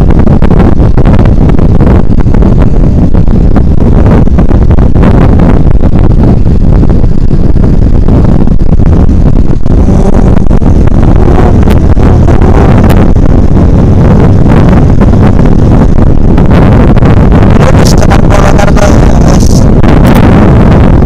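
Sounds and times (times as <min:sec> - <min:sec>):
wind buffeting microphone: 0:00.0 - 0:21.0
motorcycle engine: 0:08.8 - 0:21.0.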